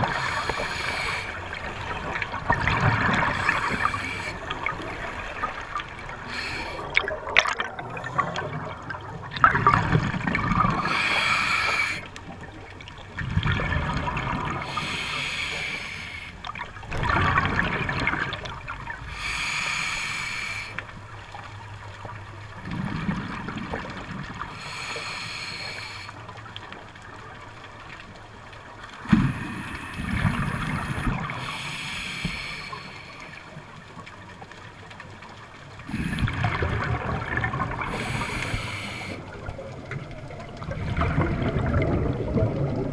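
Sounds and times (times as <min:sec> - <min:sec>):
regulator breathing hiss: 0:00.0 - 0:02.0, 0:03.3 - 0:05.5, 0:06.2 - 0:06.9, 0:10.8 - 0:12.1, 0:14.6 - 0:16.4, 0:19.1 - 0:21.0, 0:24.6 - 0:26.2, 0:29.2 - 0:33.6, 0:37.9 - 0:39.4
exhaled bubbles burbling: 0:00.0 - 0:14.9, 0:16.5 - 0:19.3, 0:22.6 - 0:24.6, 0:35.8 - 0:42.9.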